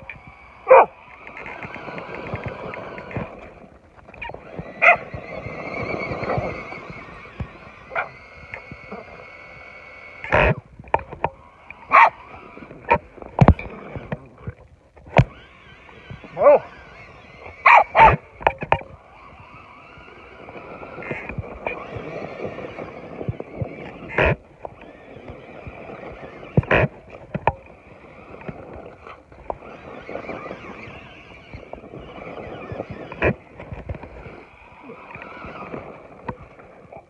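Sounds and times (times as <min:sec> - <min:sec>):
electric motor whine: 0:00.0 - 0:37.0
dog barking: 0:00.7 - 0:00.9, 0:04.8 - 0:05.0, 0:07.9 - 0:08.1, 0:11.9 - 0:12.2, 0:16.4 - 0:16.6, 0:17.6 - 0:18.2.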